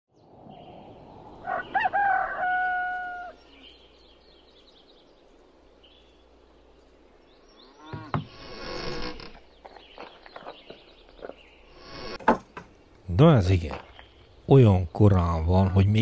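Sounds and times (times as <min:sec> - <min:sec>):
faint birds chirping: 0:00.1 - 0:16.0
rooster crowing: 0:01.4 - 0:03.6
creak: 0:07.8 - 0:10.1.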